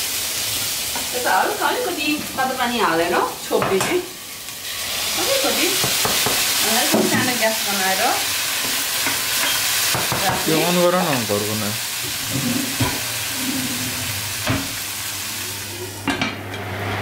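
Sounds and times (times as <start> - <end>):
curry sizzling in a pan: 0.0 - 17.0
person speaking: 10.4 - 11.8.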